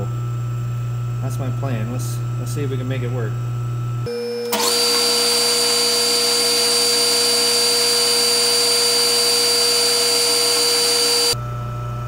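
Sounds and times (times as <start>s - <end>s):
metal lathe cutting: 4.5s - 11.4s.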